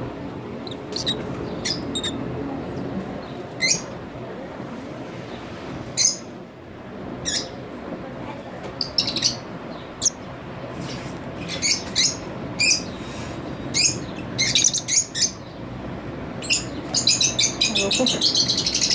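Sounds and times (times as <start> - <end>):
lovebird chirping: 0.6 - 2.2, 8.8 - 10.2.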